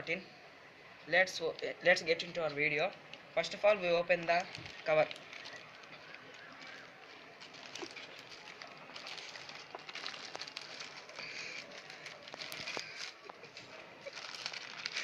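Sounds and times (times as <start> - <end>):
plastic bag tearing and crinkling: 4.2 - 15.0.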